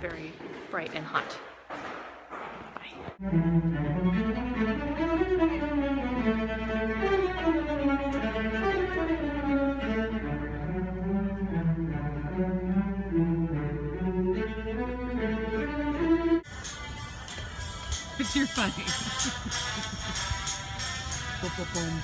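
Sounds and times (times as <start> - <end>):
steady low hum: 0.0 - 22.0
string orchestra playing: 3.2 - 16.4.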